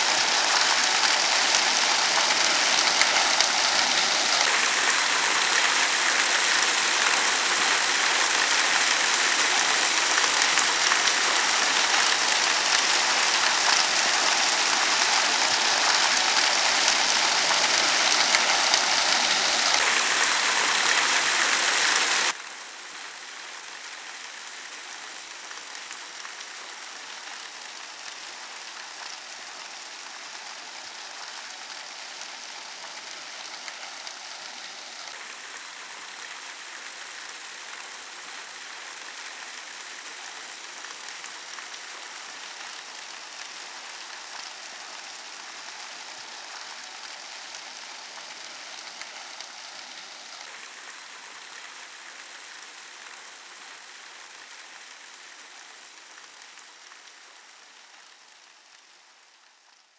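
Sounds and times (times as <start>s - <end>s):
running water hiss: 0.0s - 59.9s.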